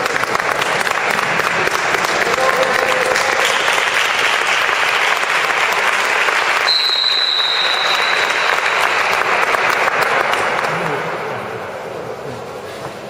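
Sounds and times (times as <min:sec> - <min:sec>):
audience applauding: 0:00.0 - 0:11.6
long high whistle: 0:06.6 - 0:09.0.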